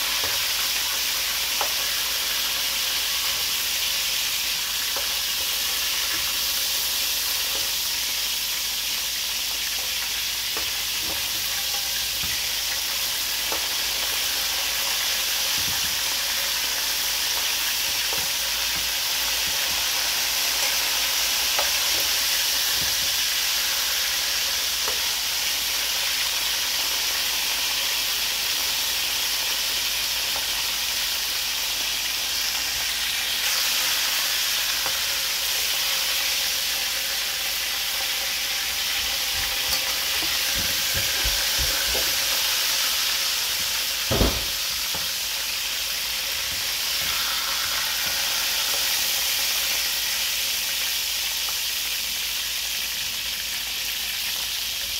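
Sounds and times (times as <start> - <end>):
birds frying in oil: 0.0 - 54.9
louder knock: 44.1 - 44.6.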